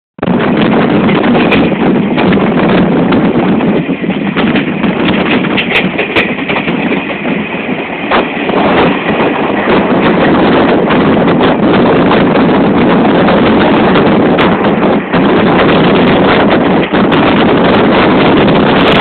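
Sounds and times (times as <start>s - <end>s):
train rumble: 0.2s - 19.0s
wheels clattering over rail joints: 0.2s - 19.0s.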